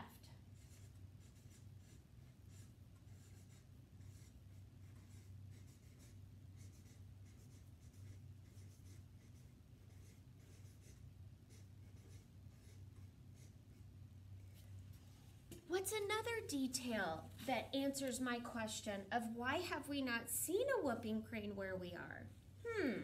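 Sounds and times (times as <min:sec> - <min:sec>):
steady low hum: 0:00.0 - 0:23.0
marker scratching on paper: 0:00.6 - 0:13.8.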